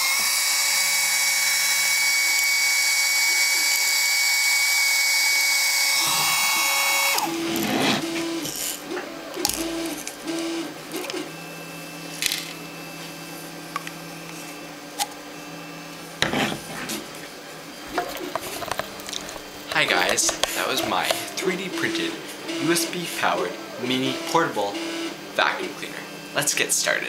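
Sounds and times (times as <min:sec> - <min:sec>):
mini vacuum motor whine: 0:00.0 - 0:19.6.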